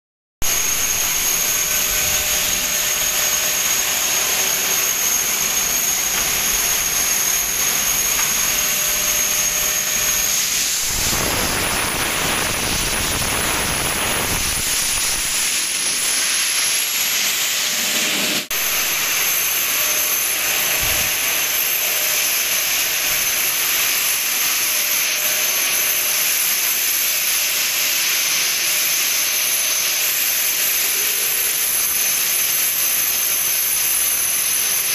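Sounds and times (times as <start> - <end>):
high whine: 0.4 - 23.9
industrial machinery rushing hiss: 0.4 - 24.1.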